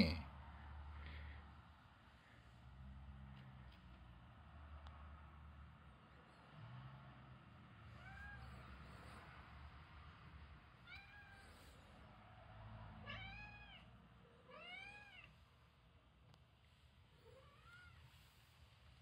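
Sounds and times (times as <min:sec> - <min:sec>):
cats meowing softly: 0:07.8 - 0:09.2, 0:10.7 - 0:15.5, 0:17.1 - 0:18.5.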